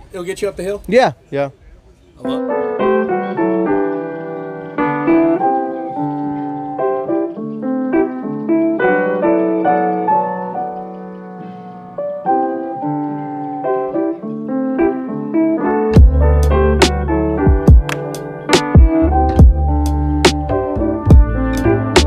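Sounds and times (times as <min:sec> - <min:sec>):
background piano music: 0:02.2 - 0:22.0.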